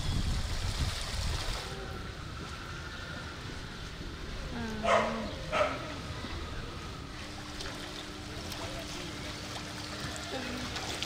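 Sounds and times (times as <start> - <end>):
water sloshing and splashing: 0.0 - 11.0
dog bark: 4.8 - 5.9.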